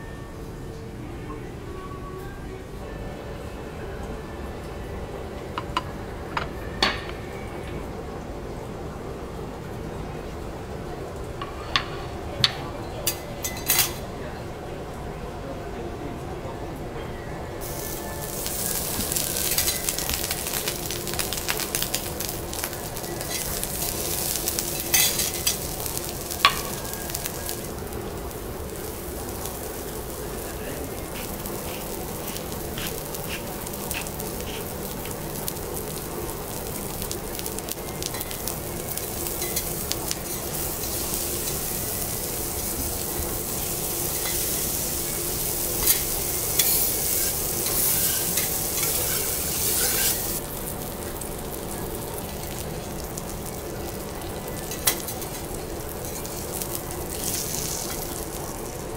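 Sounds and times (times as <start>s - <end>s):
food sizzling on a griddle: 17.6s - 58.9s.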